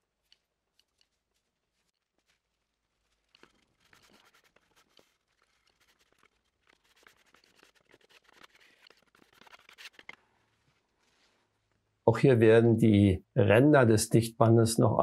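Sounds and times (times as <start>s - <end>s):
spatula scraping tape: 3.1s - 10.2s.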